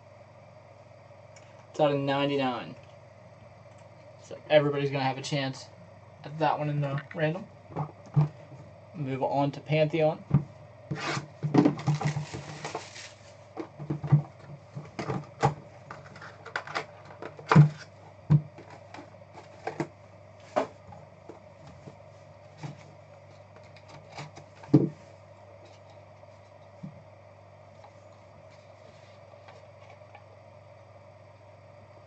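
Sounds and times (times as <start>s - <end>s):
steady low hum: 0.0s - 32.0s
cardboard and plastic knocking on table: 11.4s - 12.8s, 17.2s - 18.8s, 24.6s - 25.0s
plastic shrink wrap crinkling: 11.8s - 13.3s.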